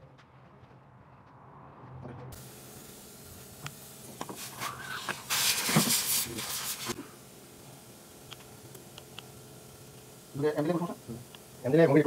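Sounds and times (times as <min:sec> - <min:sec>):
loud hiss: 0:02.4 - 0:12.0.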